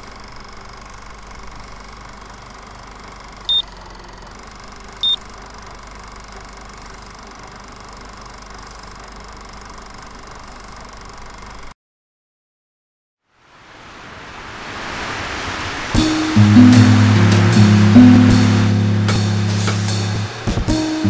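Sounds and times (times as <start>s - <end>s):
low hum: 16.0s - 20.6s.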